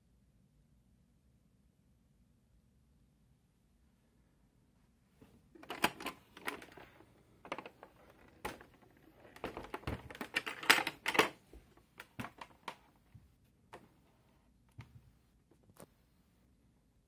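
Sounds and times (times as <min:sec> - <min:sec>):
plastic handle clicking: 0:05.6 - 0:12.8.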